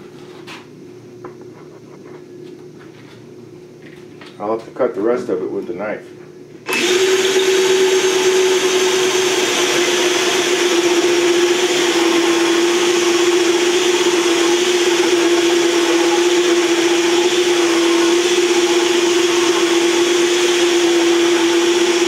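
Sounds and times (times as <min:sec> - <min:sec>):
electric drill whine: 0:06.6 - 0:22.0.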